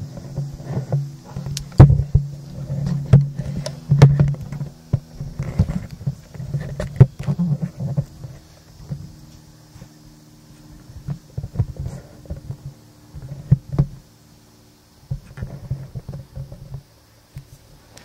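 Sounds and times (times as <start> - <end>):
steady low hum: 0.0 - 18.0
camera handling knocks and rubbing: 0.2 - 9.1.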